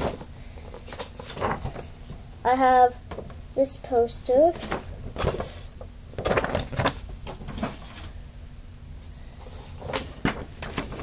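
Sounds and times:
paper posters rustling: 0:00.0 - 0:02.2, 0:03.9 - 0:08.2, 0:09.4 - 0:11.0.

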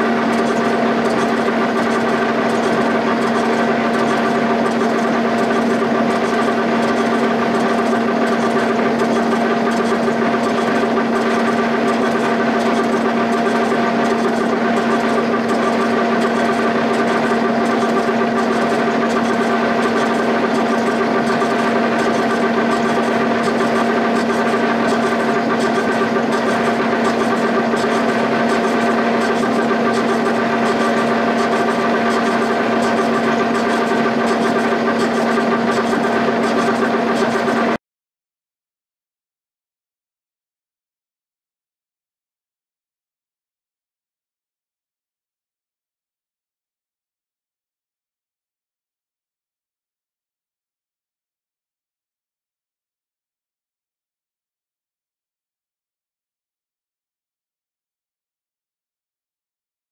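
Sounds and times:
milling machine humming: 0:00.0 - 0:37.8.

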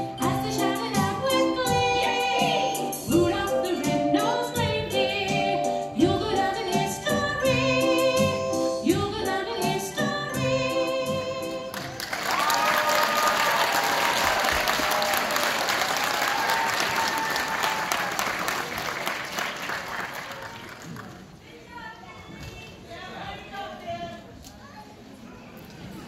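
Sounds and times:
song with singing and beat: 0:00.0 - 0:11.9
audience applause: 0:11.7 - 0:21.4
people cheering: 0:11.8 - 0:21.2.

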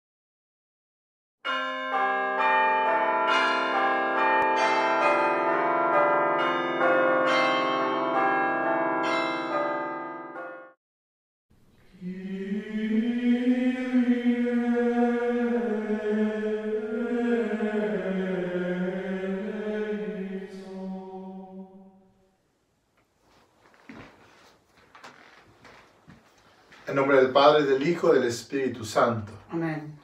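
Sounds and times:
church bells pealing: 0:01.5 - 0:10.7
person singing: 0:11.9 - 0:21.9.

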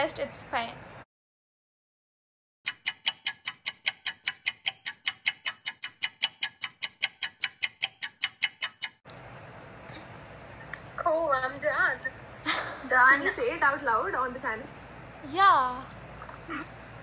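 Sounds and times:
rapid clock ticking: 0:02.6 - 0:09.0.

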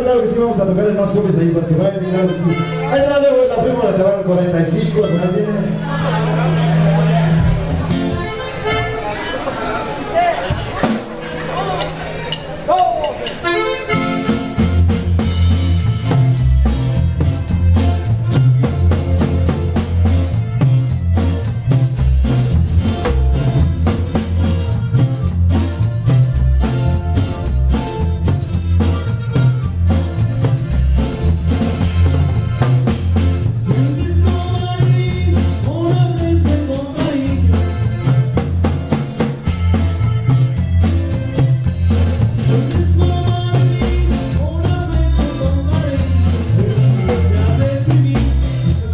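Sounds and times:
band music with bass and drums: 0:00.0 - 0:48.9
person singing: 0:33.6 - 0:37.8, 0:42.4 - 0:48.9.

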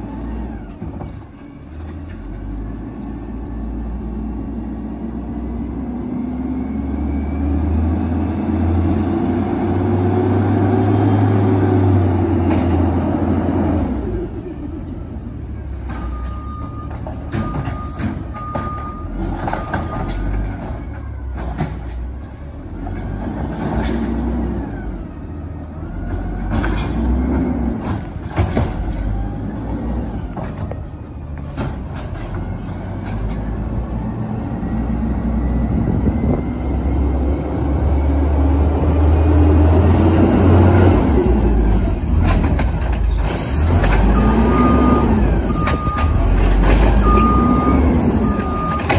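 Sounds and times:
garbage truck diesel engine: 0:00.0 - 0:48.9
truck reversing beeper: 0:06.0 - 0:08.8, 0:14.6 - 0:21.2, 0:32.2 - 0:39.2, 0:42.8 - 0:48.9.

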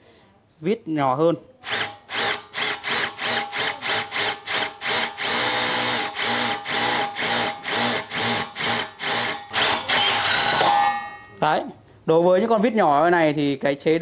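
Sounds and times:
impact driver motor bursts: 0:01.6 - 0:10.7.

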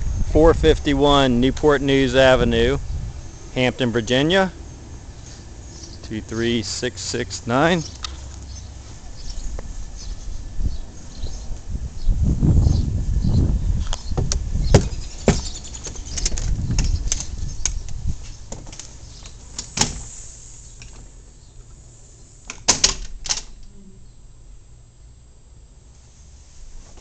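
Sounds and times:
door lock and latch clicking: 0:22.5 - 0:23.6.

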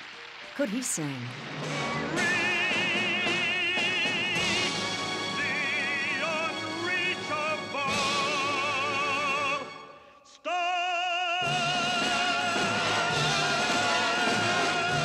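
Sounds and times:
man singing operatically: 0:02.2 - 0:13.8.

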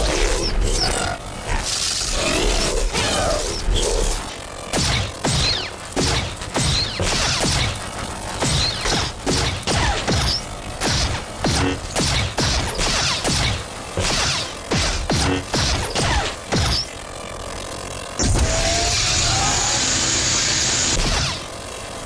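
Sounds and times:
steady electronic blade hum: 0:00.0 - 0:22.0
sharp electronic clashes: 0:03.0 - 0:17.0.

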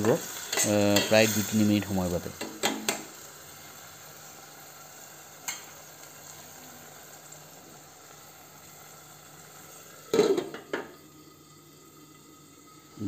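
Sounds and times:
masala sizzling in a pot: 0:00.0 - 0:13.0
glass lid clattering on pot: 0:10.1 - 0:10.9.

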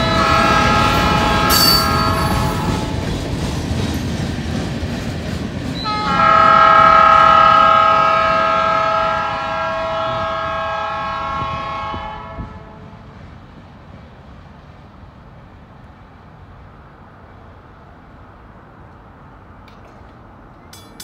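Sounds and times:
locomotive air horn chord: 0:00.0 - 0:03.1, 0:05.8 - 0:13.0
freight train rumble: 0:00.0 - 0:21.0.

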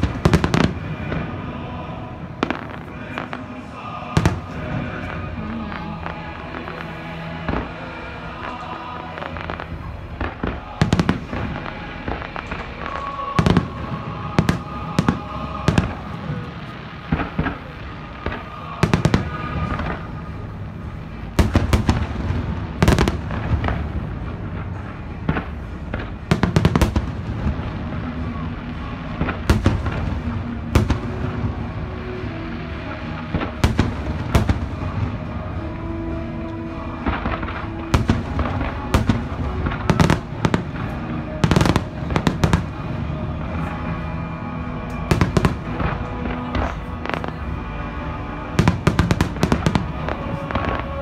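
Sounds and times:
fireworks bangs: 0:00.0 - 0:51.0
music playing: 0:00.0 - 0:51.0.

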